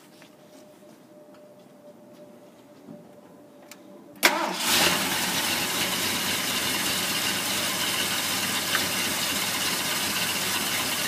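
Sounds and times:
truck engine idling: 0:05.1 - 0:11.0.

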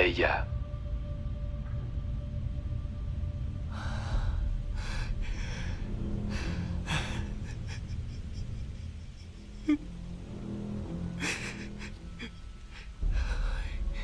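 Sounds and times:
low steady drone: 0:00.0 - 0:14.0
man sobbing: 0:05.1 - 0:14.0.

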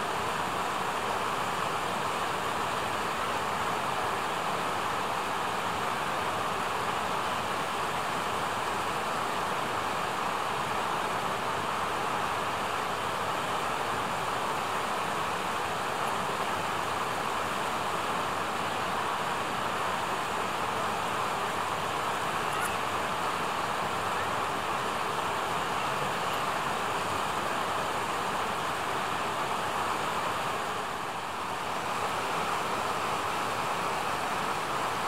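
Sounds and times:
rushing outdoor background noise: 0:00.0 - 0:35.0.

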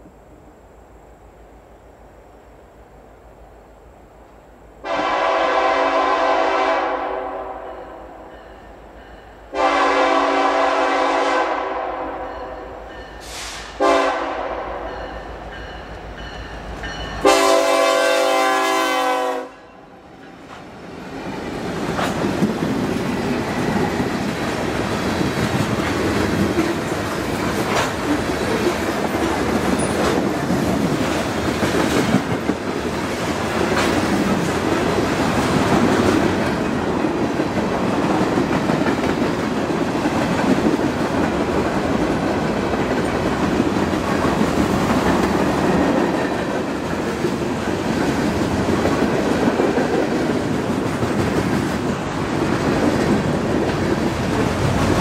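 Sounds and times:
freight train rumbling past: 0:04.7 - 0:55.0
locomotive horn blast: 0:04.8 - 0:08.0, 0:09.5 - 0:12.4, 0:13.2 - 0:14.9, 0:17.2 - 0:19.8.

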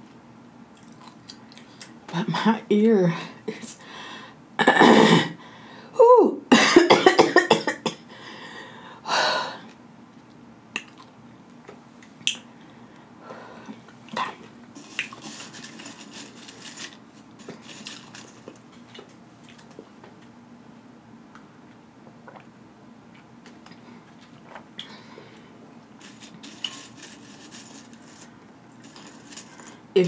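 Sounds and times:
mouth smacking and chewing: 0:00.8 - 0:02.0, 0:10.8 - 0:11.2
chips rustling in glass bowl: 0:14.8 - 0:19.6, 0:26.0 - 0:29.8.

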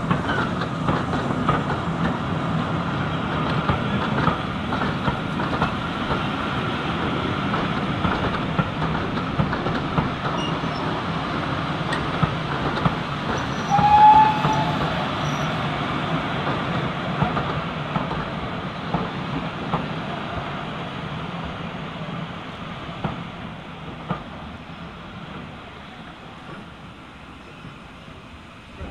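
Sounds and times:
train wheels clicking over rail joints: 0:00.0 - 0:02.3, 0:03.3 - 0:19.9
high wheel squeal: 0:10.4 - 0:11.0, 0:13.3 - 0:15.7.

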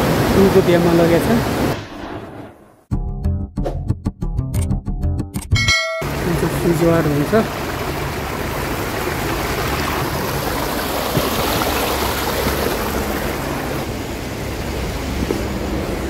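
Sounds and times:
mountain stream rushing: 0:00.0 - 0:01.9, 0:06.0 - 0:16.0.

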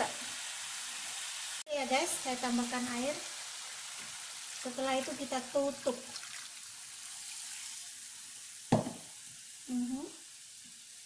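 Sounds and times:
wok sizzling: 0:00.0 - 0:11.0
water pouring: 0:03.6 - 0:07.9
sharp knock: 0:08.7 - 0:09.1.

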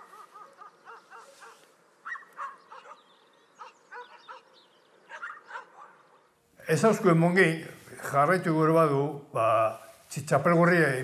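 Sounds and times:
distant dogs barking: 0:00.0 - 0:06.4.

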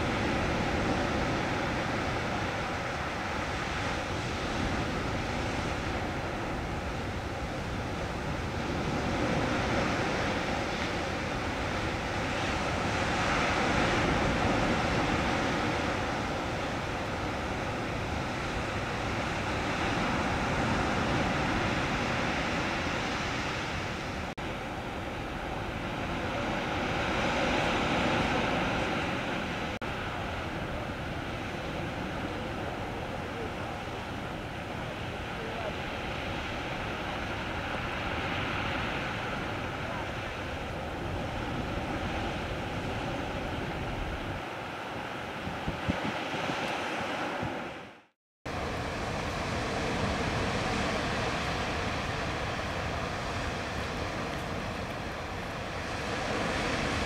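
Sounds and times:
sea waves: 0:00.0 - 0:57.0
wind: 0:00.0 - 0:57.0.

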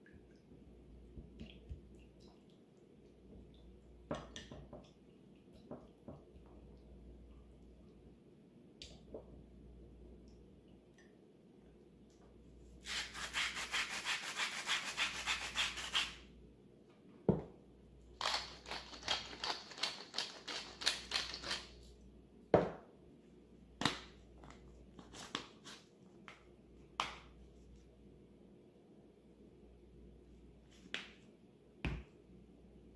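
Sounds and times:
spice mill grinding: 0:18.2 - 0:21.7.

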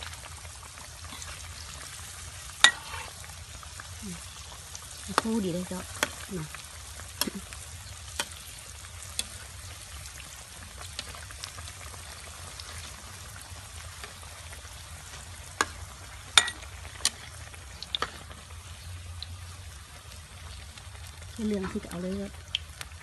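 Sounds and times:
food deep-frying in hot oil: 0:00.0 - 0:23.0.

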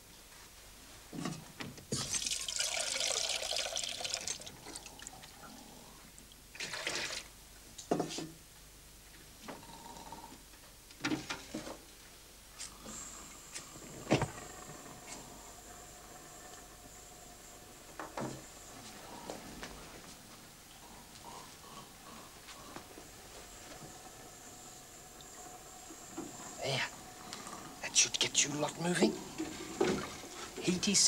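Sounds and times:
water pouring into container: 0:02.0 - 0:05.3, 0:06.5 - 0:07.3.

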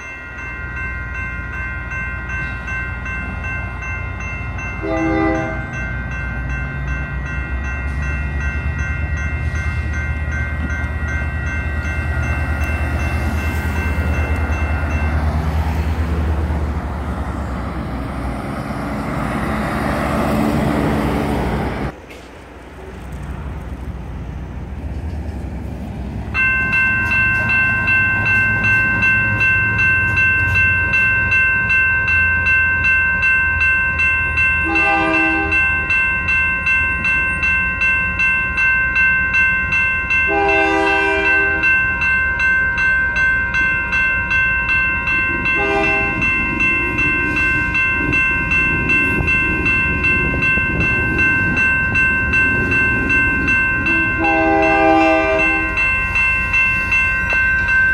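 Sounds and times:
crossing bells dinging: 0:00.0 - 0:22.0, 0:25.3 - 0:57.9
locomotive horn blasts: 0:04.8 - 0:05.8, 0:34.6 - 0:35.6, 0:40.3 - 0:41.8, 0:45.4 - 0:46.3, 0:53.8 - 0:55.8.

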